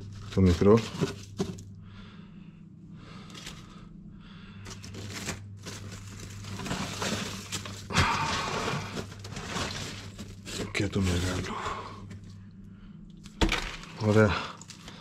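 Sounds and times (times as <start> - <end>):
ice chunks crunching and clattering: 0.3 - 1.6, 4.7 - 12.2, 13.3 - 15.0.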